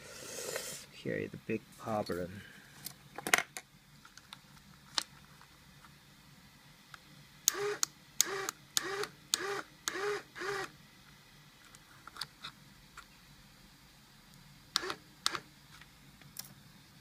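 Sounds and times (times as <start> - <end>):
small electric motor whirring: 7.5 - 10.7, 14.8 - 15.4.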